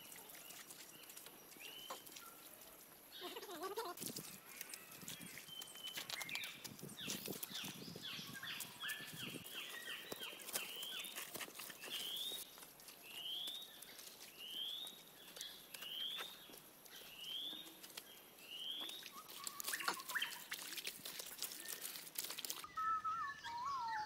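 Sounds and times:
bird chirping: 0:22.6 - 0:24.0.

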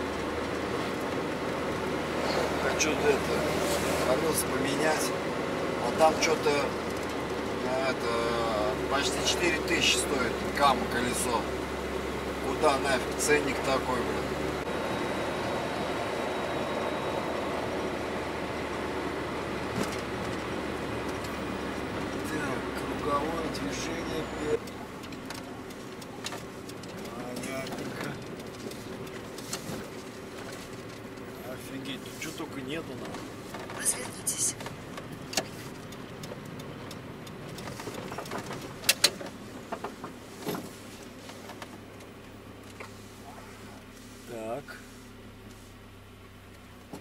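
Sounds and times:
truck engine and road noise: 0:00.0 - 0:47.0.

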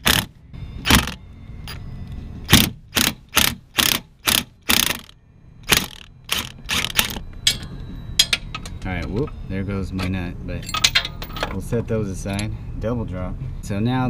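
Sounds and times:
impact wrench bursts: 0:00.0 - 0:01.2, 0:02.5 - 0:07.2.

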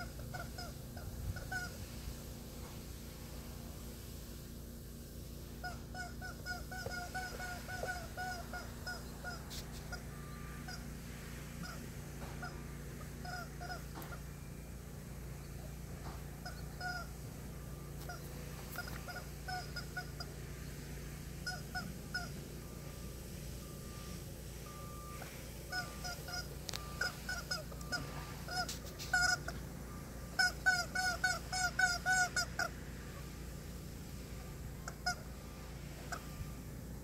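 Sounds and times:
rubber chicken toy squeaking: 0:00.0 - 0:01.9, 0:05.6 - 0:10.9, 0:11.6 - 0:11.8, 0:13.2 - 0:14.2, 0:16.4 - 0:17.1, 0:18.0 - 0:20.3, 0:21.4 - 0:22.8, 0:25.7 - 0:29.6, 0:30.3 - 0:32.7, 0:34.8 - 0:35.3.

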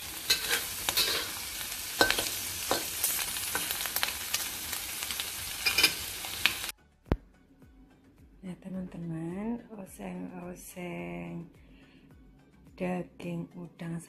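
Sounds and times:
food sizzling in a wok: 0:00.0 - 0:06.7
spatula scraping a wok: 0:00.0 - 0:06.7.

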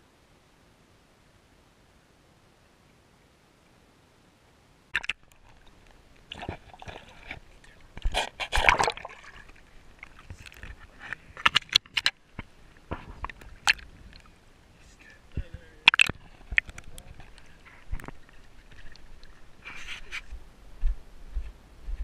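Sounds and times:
water splashing: 0:05.0 - 0:20.3.

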